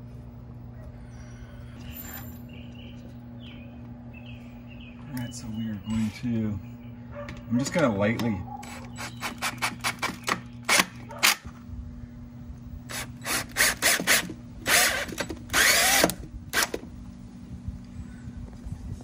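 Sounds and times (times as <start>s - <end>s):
cordless drill driving screws: 12.9s - 16.8s.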